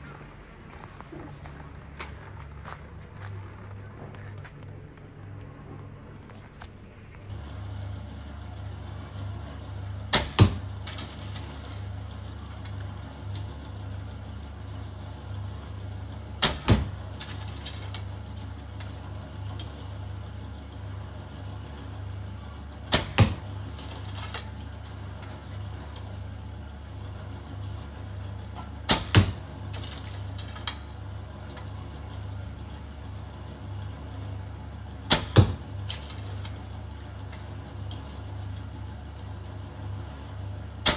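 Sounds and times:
low hum: 0:00.0 - 0:40.9
arrow striking foam target: 0:10.1 - 0:10.7, 0:16.4 - 0:17.0, 0:22.9 - 0:23.5, 0:28.9 - 0:29.4, 0:35.1 - 0:36.1.

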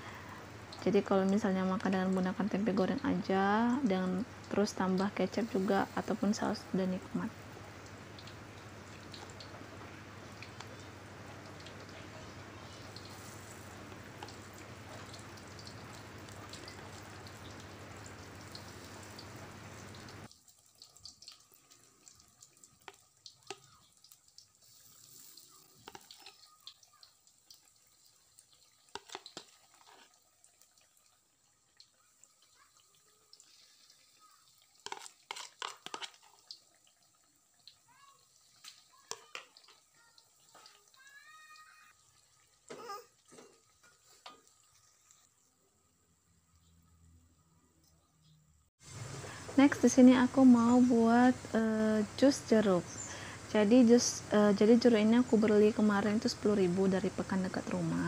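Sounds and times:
oil crackles and pops: 0:00.0 - 0:45.5
food deep-frying in hot oil: 0:00.0 - 0:58.0.

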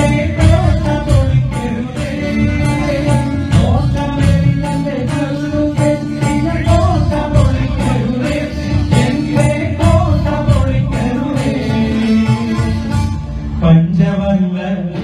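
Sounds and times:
tabla and percussion beat: 0:00.0 - 0:15.0
two men singing a duet: 0:00.0 - 0:15.0.

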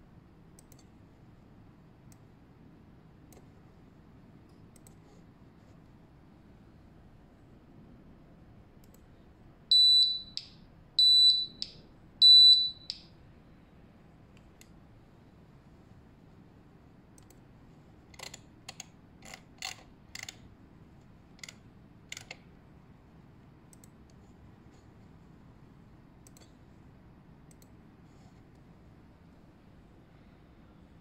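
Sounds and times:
high-pitched alarm beeps: 0:09.7 - 0:13.1.

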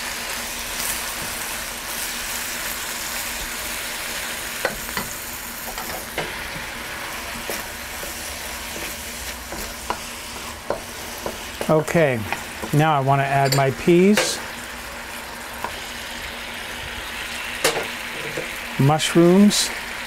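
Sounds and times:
vegetables sizzling in a wok: 0:00.0 - 0:20.0
spatula tapping a pan: 0:09.5 - 0:12.8.

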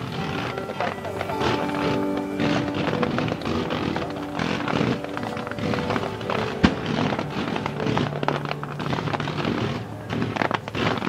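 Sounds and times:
fireworks crackles and pops: 0:00.0 - 0:11.0
fireworks bang: 0:02.6 - 0:11.0.

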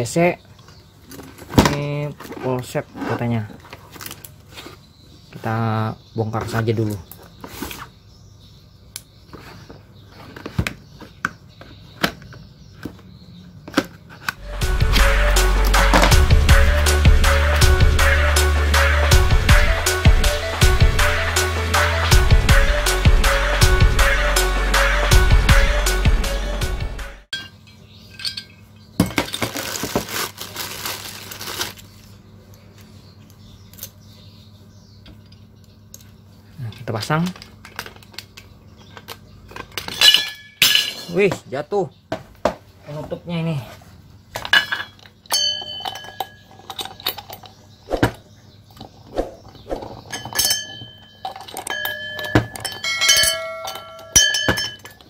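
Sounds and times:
plastic bag crinkling: 0:29.3 - 0:32.2
metal parts clicking: 0:44.4 - 0:47.5
bell-like metal ring: 0:45.3 - 0:46.6, 0:50.1 - 0:55.0.

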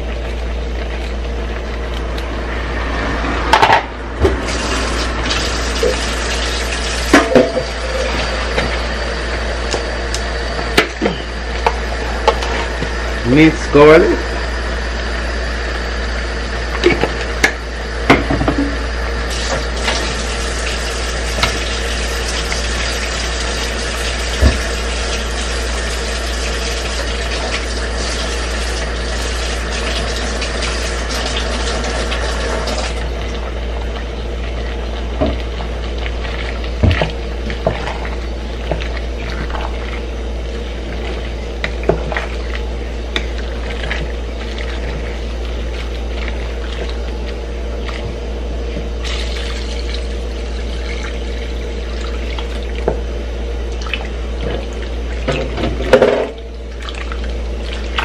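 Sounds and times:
low hum: 0:00.0 - 0:19.0
pot boiling with bubbling hiss: 0:00.0 - 0:58.0.

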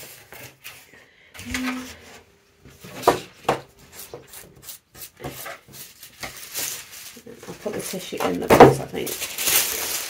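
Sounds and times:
tissue paper rustling: 0:03.8 - 0:10.0.

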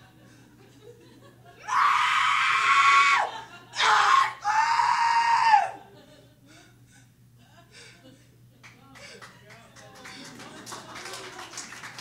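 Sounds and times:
woman screaming: 0:01.6 - 0:05.8.

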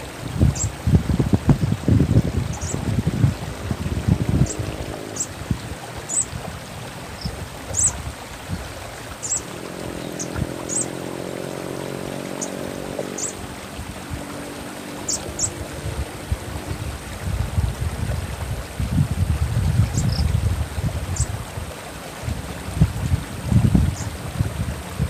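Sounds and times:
running water: 0:00.0 - 0:25.0
bird chirping: 0:07.2 - 0:08.0, 0:09.2 - 0:11.0, 0:12.4 - 0:13.4, 0:15.1 - 0:15.6.

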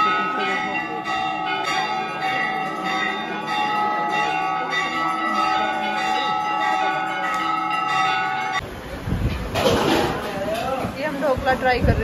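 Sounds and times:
temple bells ringing: 0:00.0 - 0:08.6.

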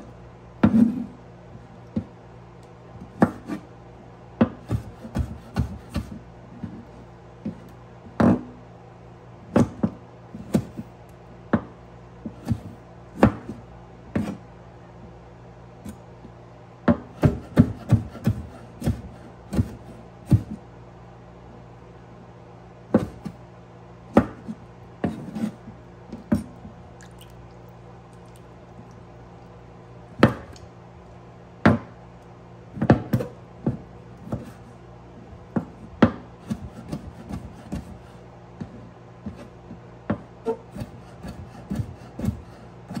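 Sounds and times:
steady low hum: 0:00.0 - 0:43.0
knife chopping on wooden board: 0:03.1 - 0:03.6, 0:04.4 - 0:06.2, 0:11.5 - 0:14.4, 0:16.9 - 0:20.6, 0:22.9 - 0:23.4, 0:24.1 - 0:27.3, 0:30.2 - 0:30.6, 0:32.8 - 0:34.7, 0:35.6 - 0:39.5, 0:40.1 - 0:43.0.

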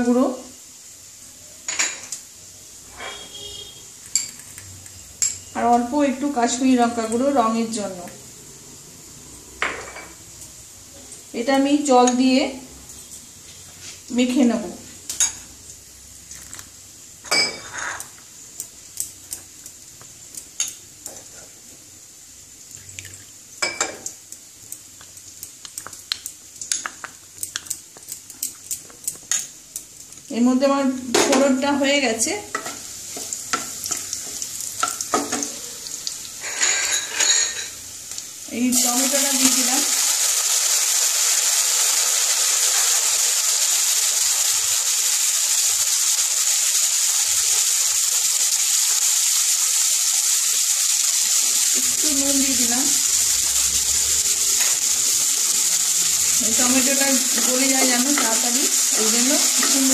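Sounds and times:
spices sizzling in oil: 0:00.0 - 0:59.9
spoon scraping glass bowl: 0:02.9 - 0:03.5, 0:17.4 - 0:18.1, 0:36.4 - 0:37.8.

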